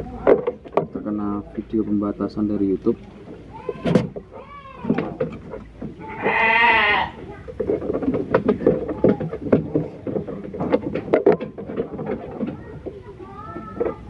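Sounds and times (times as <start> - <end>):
sheep bleating: 6.0 - 7.2
handling clicks and rustling: 7.2 - 14.0.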